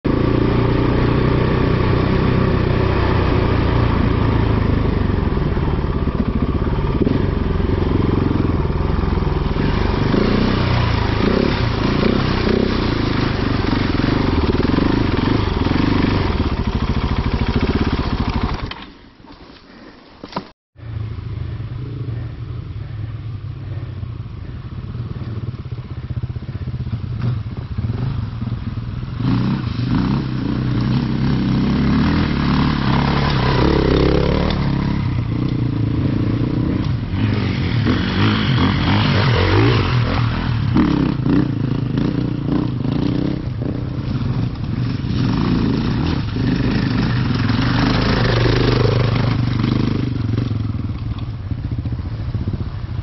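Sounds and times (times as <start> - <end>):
vehicle engine running: 20.8 - 53.0.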